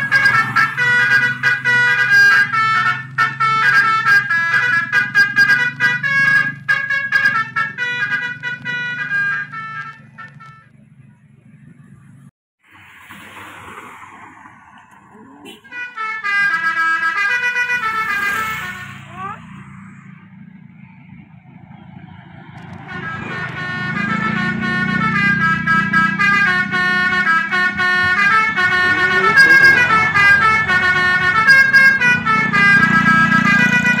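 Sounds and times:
multi-tone horn melody: 0:00.0 - 0:10.8, 0:15.4 - 0:19.7, 0:22.6 - 0:34.0
low engine hum: 0:14.4 - 0:34.0.

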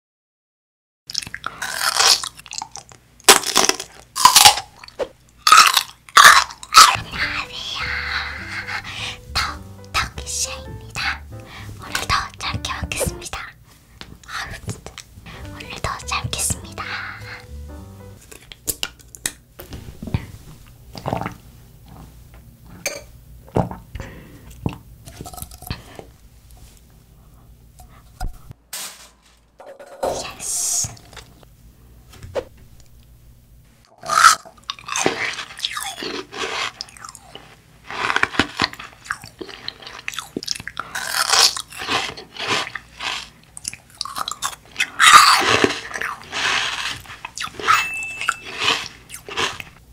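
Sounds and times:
celery crunching bites: 0:01.1 - 0:07.0, 0:48.4 - 0:49.8
chewing: 0:34.0 - 0:49.8.

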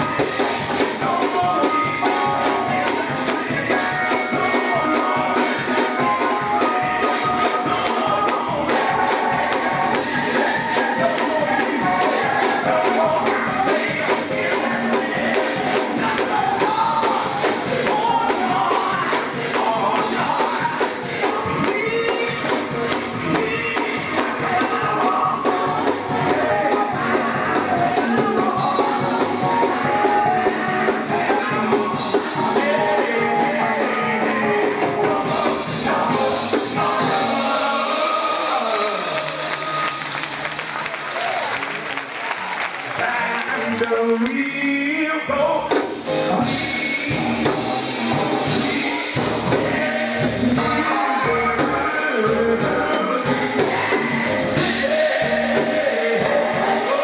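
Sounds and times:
man singing into microphone: 0:00.0 - 0:40.4, 0:42.9 - 0:57.0
tambourine shaking: 0:00.0 - 0:42.6
choir singing gospel: 0:00.0 - 0:57.0
hand clapping: 0:39.1 - 0:44.4.

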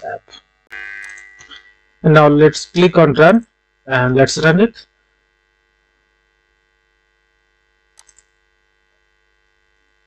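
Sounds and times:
faint electrical hum: 0:00.0 - 0:10.0
computer mouse clicks: 0:08.0 - 0:08.4.

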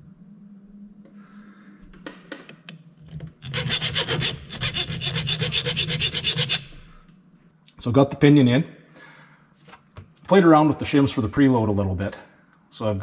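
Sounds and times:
hand file rasping on metal: 0:03.4 - 0:06.9.

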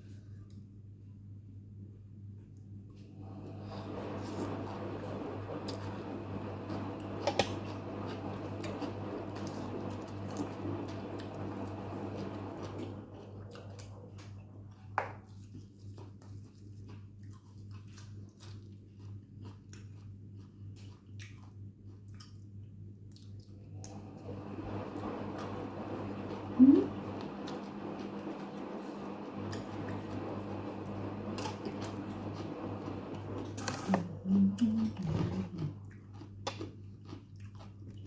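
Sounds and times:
slurping and chewing noodles: 0:12.2 - 0:22.4, 0:26.2 - 0:38.0
low hum: 0:23.4 - 0:36.0.

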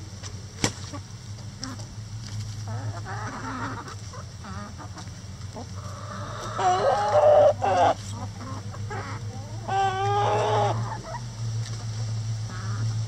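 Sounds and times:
chickens clucking: 0:00.0 - 0:13.0
low steady hum: 0:00.0 - 0:13.0
drawn-out chicken call: 0:02.6 - 0:11.5, 0:12.4 - 0:13.0.

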